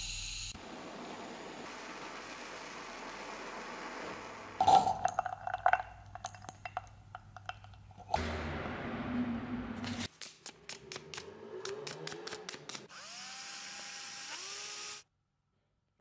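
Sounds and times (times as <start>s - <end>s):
cordless drill whirring: 12.9s - 15.0s.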